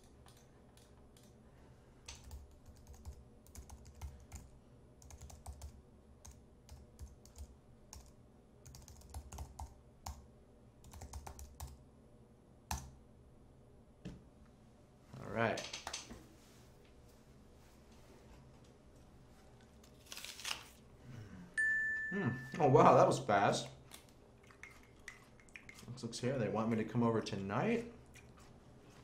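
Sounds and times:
typing on computer keyboard: 0:02.1 - 0:10.2, 0:10.8 - 0:11.8.

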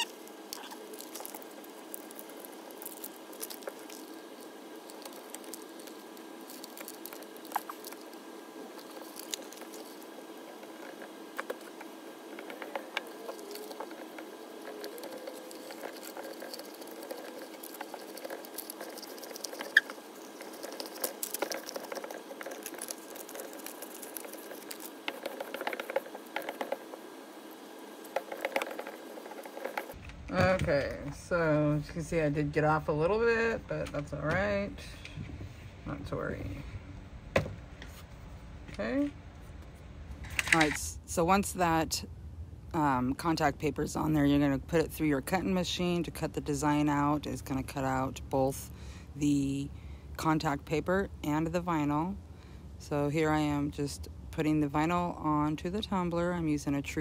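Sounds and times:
paper crinkling and rubbing: 0:00.0 - 0:30.0
steady low hum: 0:00.0 - 0:57.0.

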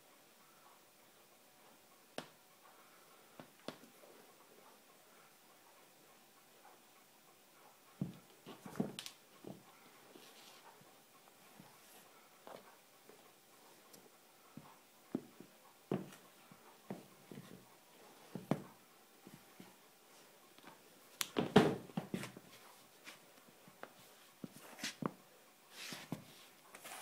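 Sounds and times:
sneakers stepping on hardwood floor: 0:15.1 - 0:16.2, 0:21.4 - 0:22.4.

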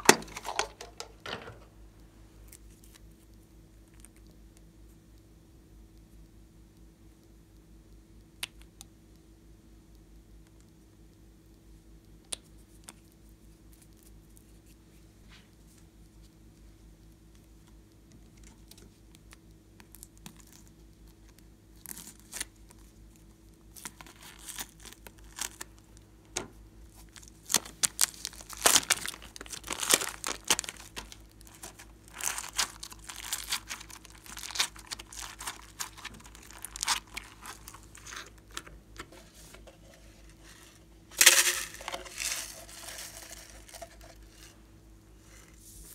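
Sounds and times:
plastic bag crinkling: 0:00.0 - 0:01.6, 0:23.8 - 0:25.8, 0:27.0 - 0:39.6, 0:41.1 - 0:44.5.

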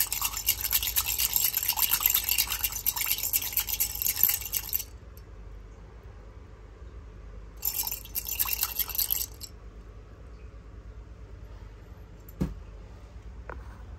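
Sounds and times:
hard candies rattling against glass: 0:00.0 - 0:04.9, 0:07.6 - 0:09.5.

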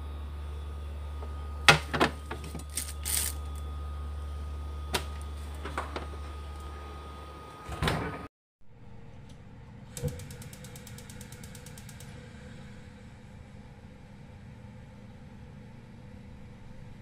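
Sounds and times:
refrigerator humming: 0:00.0 - 0:17.0.

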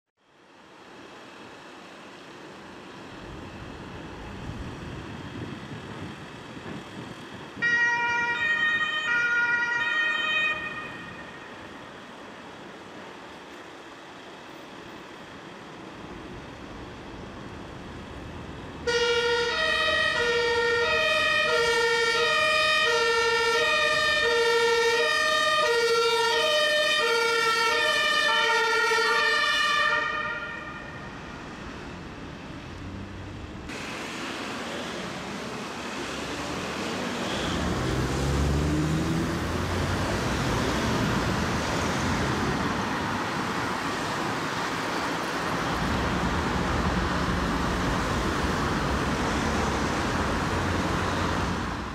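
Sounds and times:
street traffic noise: 0:00.2 - 0:51.9
two-tone ambulance siren: 0:07.6 - 0:11.7, 0:18.8 - 0:31.4
vehicle engine revving: 0:32.8 - 0:42.4.

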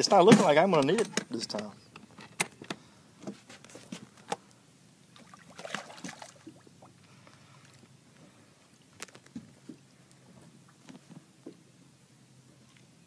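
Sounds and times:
fish thrashing splash: 0:05.2 - 0:06.7.

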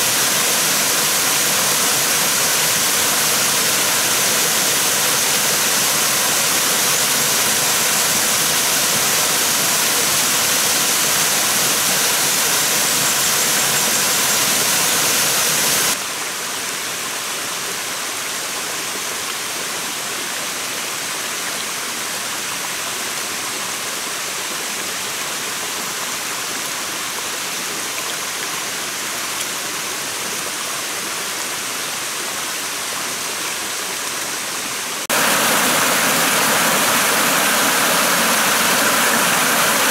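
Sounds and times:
water rushing over rocks: 0:00.0 - 0:16.2, 0:30.4 - 0:39.9.

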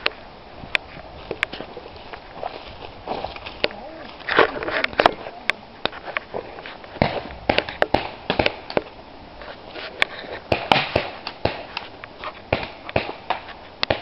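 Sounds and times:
paintball markers firing pops: 0:07.0 - 0:08.9.

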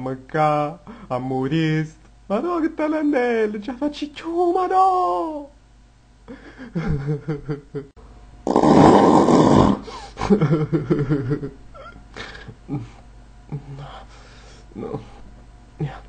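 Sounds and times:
harsh rasping cry: 0:08.5 - 0:09.9
man making pulsing vocal sounds: 0:14.7 - 0:15.2.

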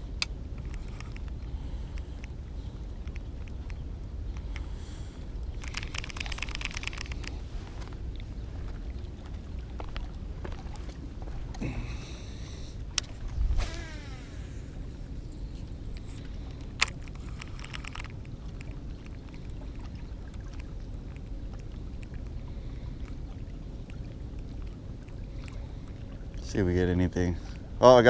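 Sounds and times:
steady low rumble: 0:00.0 - 0:28.0
fishing reel spool whirring: 0:13.6 - 0:15.3.

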